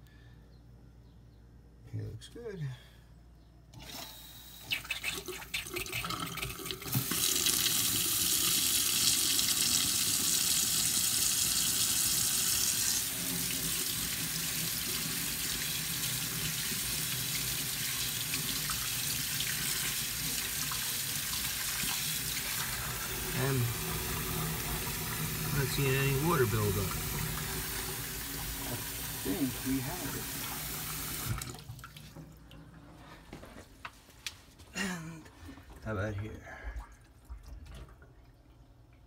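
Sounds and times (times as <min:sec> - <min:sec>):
water running into steel sink: 0:04.7 - 0:32.3.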